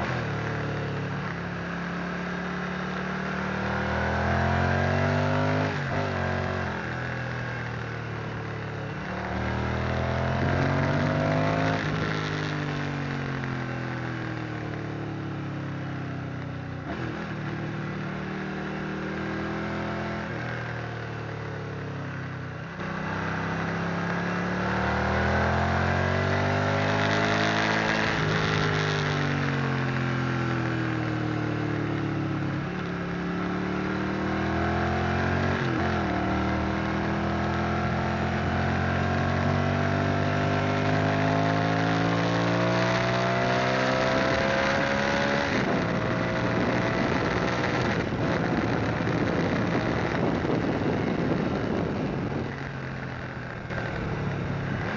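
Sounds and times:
motorcycle engine revving: 0.0s - 54.9s
wind rush on microphone: 45.4s - 54.9s.

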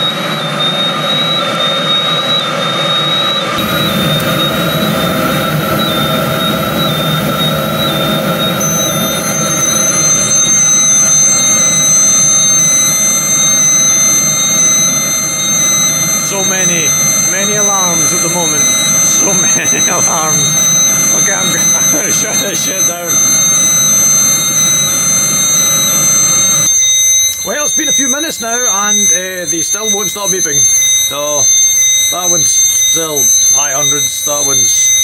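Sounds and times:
diesel heater roaring: 0.0s - 35.0s
high-pitched gas detector alarm tones: 0.0s - 35.0s
higher alarm tones: 0.0s - 35.0s
deep fan rumble: 3.6s - 27.4s.

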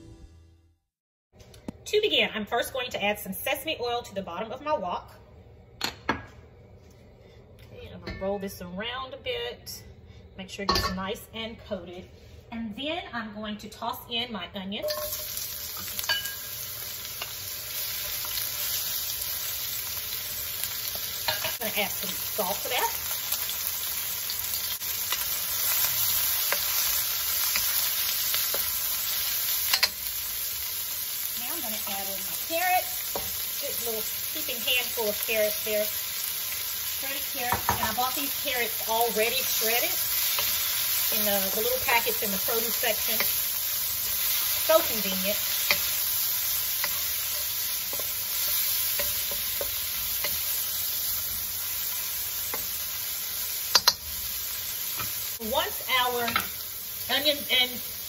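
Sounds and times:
onions sizzling in oil: 14.8s - 58.0s
spatula scraping wok: 24.6s - 55.4s.

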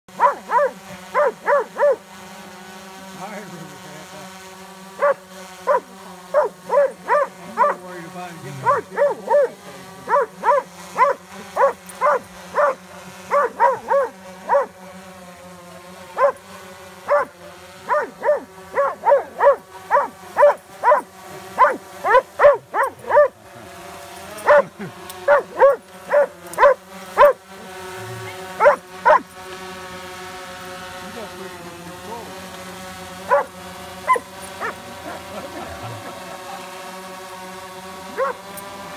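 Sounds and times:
drone rotor hum: 0.1s - 38.9s
dog barking: 0.2s - 2.0s, 5.0s - 7.8s, 8.6s - 14.8s, 16.2s - 16.4s, 17.1s - 17.3s, 17.9s - 23.4s, 24.5s - 24.7s, 25.3s - 27.4s, 28.6s - 29.2s, 33.3s - 33.5s, 34.1s - 35.2s, 38.2s - 38.4s.

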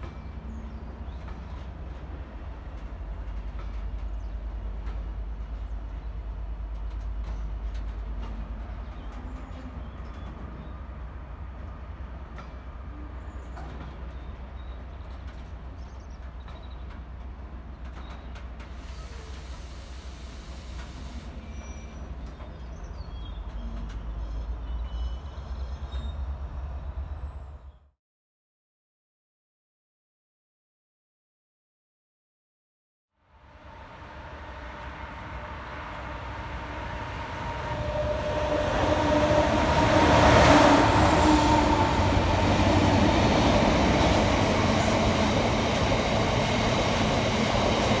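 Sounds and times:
freight train rumbling past: 0.0s - 27.6s, 33.4s - 48.0s
diesel locomotive rumble: 33.6s - 48.0s.

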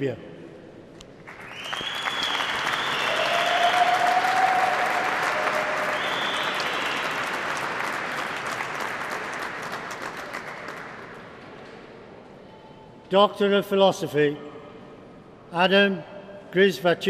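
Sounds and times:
audience applauding: 1.2s - 11.3s.

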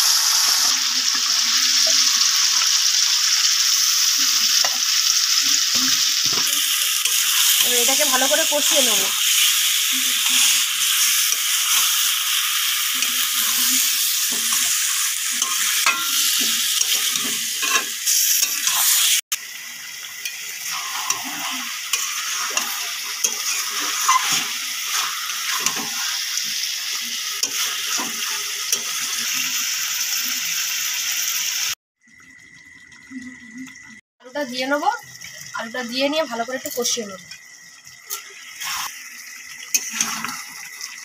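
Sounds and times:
chicken sizzling in hot oil: 0.0s - 31.8s, 33.4s - 41.0s
metal spatula scraping pan: 13.0s - 19.1s, 20.2s - 26.3s.

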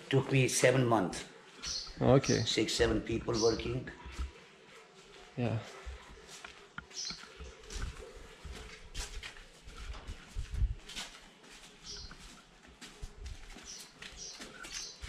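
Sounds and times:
high bird chirps: 1.6s - 3.9s, 6.8s - 7.5s, 11.9s - 12.2s
footsteps on gritty concrete: 1.6s - 15.0s.

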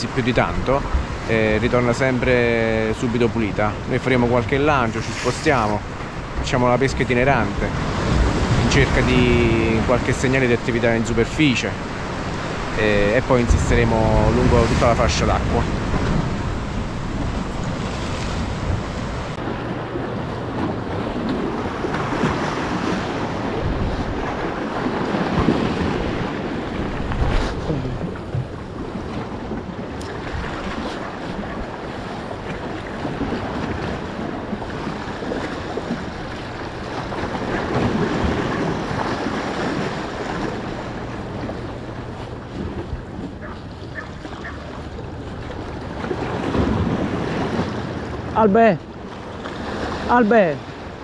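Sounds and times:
sea waves breaking: 0.0s - 51.0s
wind buffeting microphone: 11.8s - 50.1s.

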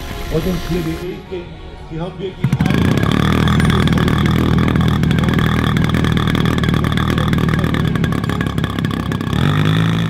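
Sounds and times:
model plane engine idling: 2.4s - 10.0s.

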